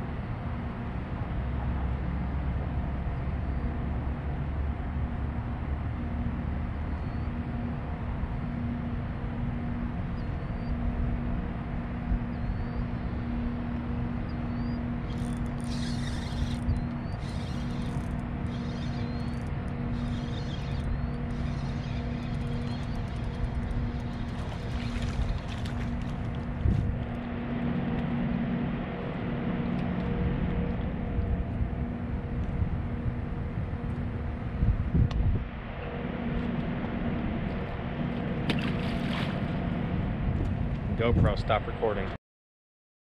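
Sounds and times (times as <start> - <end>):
boat motor humming: 0.9 - 41.0
fishing reel drag buzzing: 14.9 - 26.5.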